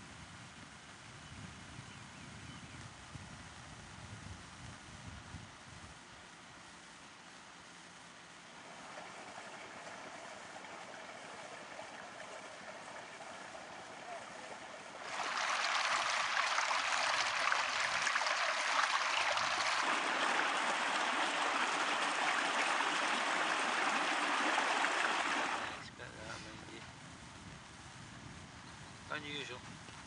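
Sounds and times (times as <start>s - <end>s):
stream rushing over stones: 8.6s - 25.8s.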